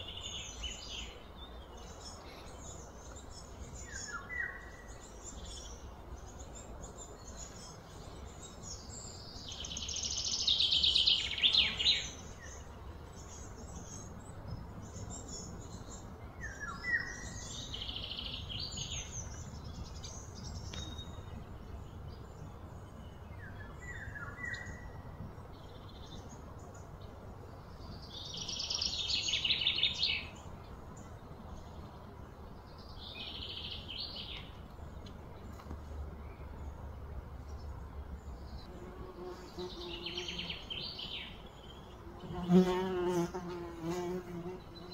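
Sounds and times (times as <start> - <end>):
birds trilling songs: 0.0 - 44.9
low background noise: 0.0 - 44.9.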